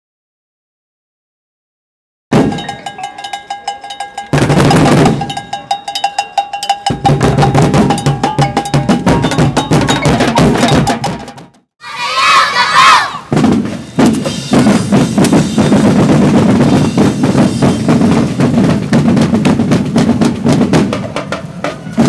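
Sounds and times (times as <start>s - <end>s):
fast drum strikes: 2.3s - 11.7s, 13.2s - 22.0s
ringing metallic bell tone: 2.5s - 4.5s, 5.1s - 10.9s.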